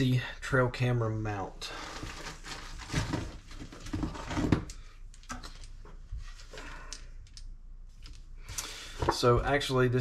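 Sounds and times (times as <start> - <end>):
packaging rustling: 1.8 - 4.6.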